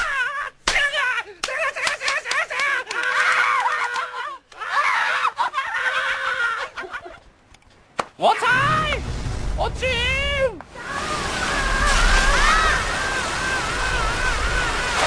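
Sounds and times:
person screaming: 0:10.8 - 0:15.0.

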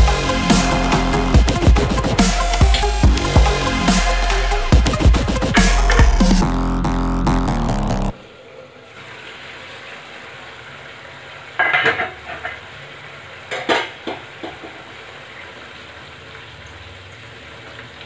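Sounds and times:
curry simmering in a pot: 0:09.0 - 0:18.0
metal lid clattering: 0:11.6 - 0:12.6.

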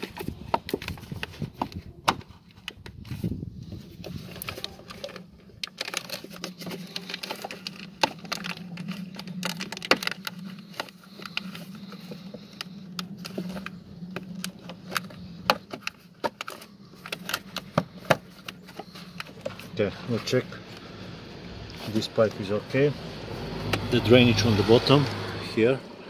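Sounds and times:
plastic clicks taps and rustles: 0:04.2 - 0:19.6.

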